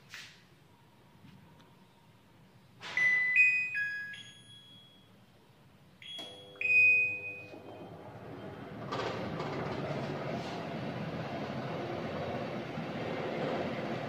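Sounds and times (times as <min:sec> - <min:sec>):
short pair of beeps: 0:02.9 - 0:05.2, 0:06.0 - 0:07.6
range hood fan humming: 0:05.5 - 0:14.0.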